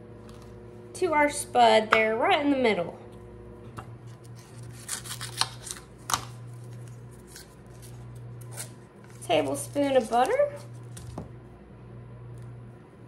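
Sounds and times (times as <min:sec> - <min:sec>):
low steady hum: 0:00.0 - 0:13.0
paper wrapper rustling: 0:04.2 - 0:11.0.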